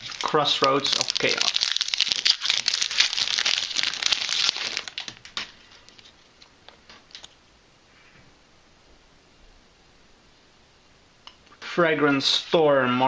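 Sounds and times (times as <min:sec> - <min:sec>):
foil wrapper crinkling and tearing: 0:00.0 - 0:06.2.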